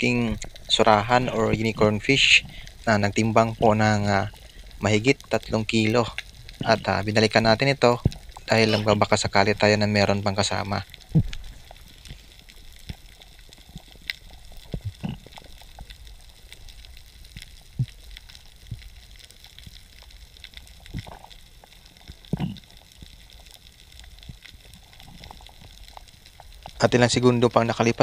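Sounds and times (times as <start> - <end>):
underwater rumble: 0.0 - 28.0.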